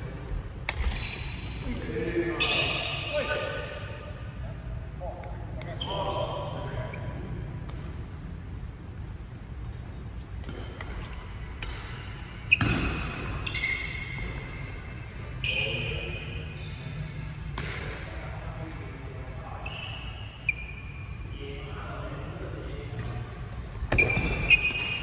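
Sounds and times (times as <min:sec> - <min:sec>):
steady low hum: 0:00.0 - 0:25.0
shoes squeaking on court floor: 0:00.8 - 0:03.8, 0:05.6 - 0:07.2, 0:09.6 - 0:17.3, 0:19.5 - 0:21.3, 0:23.0 - 0:25.0
rackets striking shuttlecock: 0:17.5 - 0:18.0.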